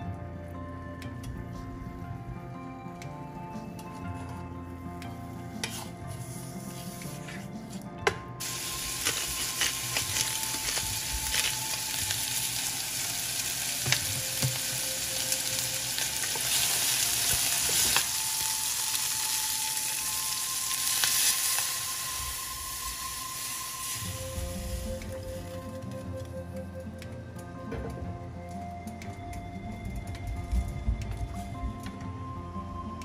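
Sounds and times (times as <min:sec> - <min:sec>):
spatula scraping a pan: 0:05.5 - 0:07.8, 0:08.4 - 0:11.5
chicken sizzling in a pan: 0:08.4 - 0:25.6.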